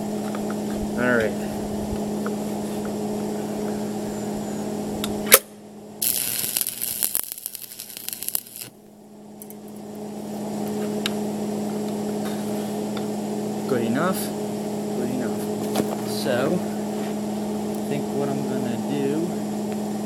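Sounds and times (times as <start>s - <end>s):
welder hum: 0.0s - 19.3s
welding arc crackling and sizzling: 6.0s - 8.8s.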